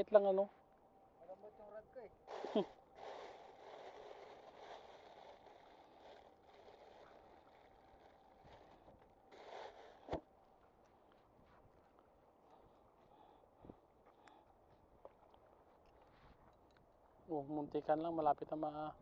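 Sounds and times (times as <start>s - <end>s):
plastic bag rustling: 2.3s - 10.2s.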